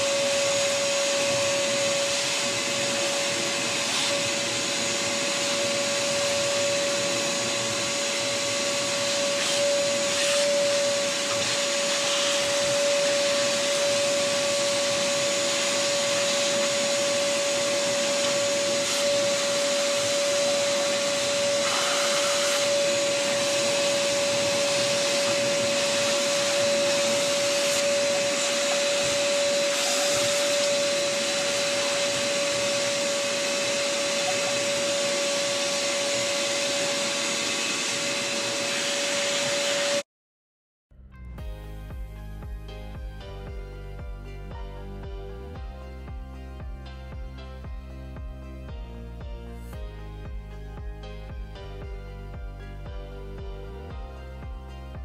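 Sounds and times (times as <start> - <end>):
shop vacuum whining: 0.0 - 40.1.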